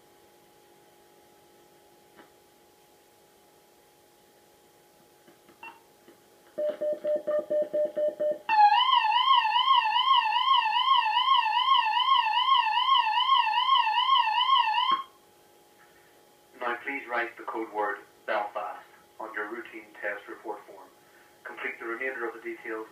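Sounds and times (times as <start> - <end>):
warbling warning tone: 8.5 - 15.1.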